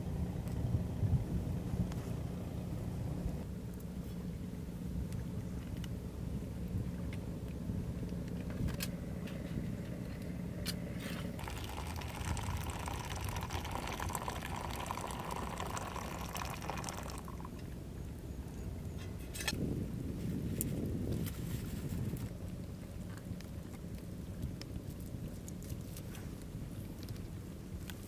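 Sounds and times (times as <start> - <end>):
water pouring into metal cup: 11.4 - 17.5.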